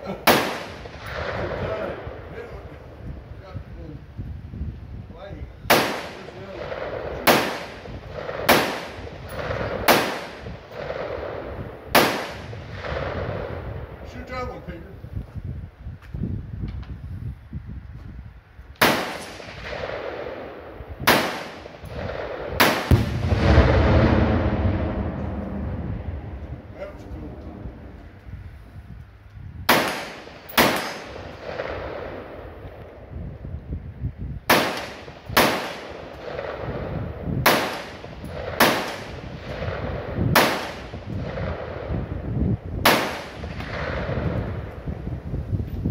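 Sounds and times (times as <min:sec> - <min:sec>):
rifle shots with echo: 0:00.1 - 0:02.7, 0:05.7 - 0:14.3, 0:18.8 - 0:28.2, 0:29.7 - 0:33.0, 0:34.5 - 0:42.2, 0:42.8 - 0:44.9.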